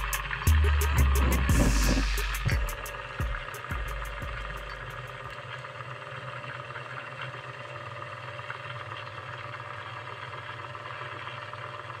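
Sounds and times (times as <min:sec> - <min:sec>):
low hum: 0:00.0 - 0:09.2
small electric motor whirring: 0:00.0 - 0:12.0.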